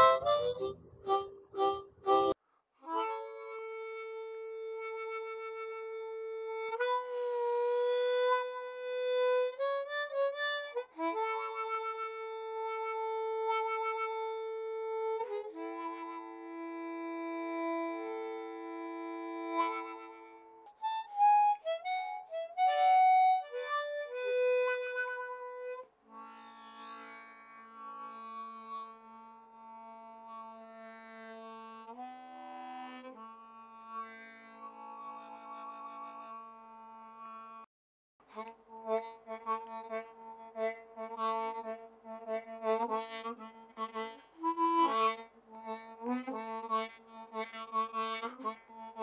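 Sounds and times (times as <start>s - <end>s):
solo harmonica melody: 0.0s - 37.7s, 38.3s - 49.0s.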